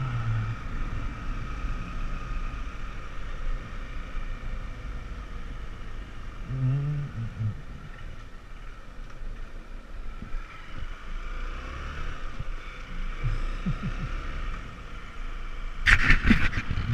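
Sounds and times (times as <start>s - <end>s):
motorcycle running: 0.0s - 16.9s
wind on microphone: 15.9s - 16.9s.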